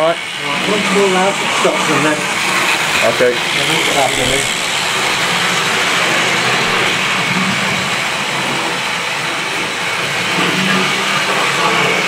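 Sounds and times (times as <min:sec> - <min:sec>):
model train motors whirring: 0:00.0 - 0:12.0.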